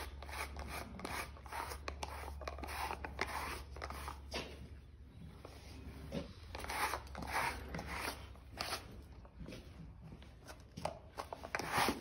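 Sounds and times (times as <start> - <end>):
curry comb scrubbing horse coat: 0.0 - 4.3, 6.5 - 8.9, 11.2 - 12.0.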